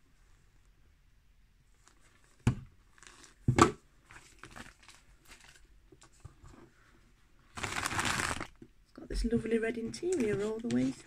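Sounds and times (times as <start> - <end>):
paper packaging crinkling: 4.1 - 5.7, 7.5 - 8.6.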